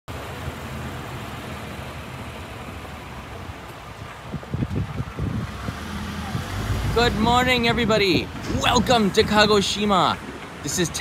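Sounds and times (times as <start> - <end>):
car engine humming: 0.1 - 11.0
city street traffic: 0.1 - 11.0
low bumps: 2.0 - 10.7.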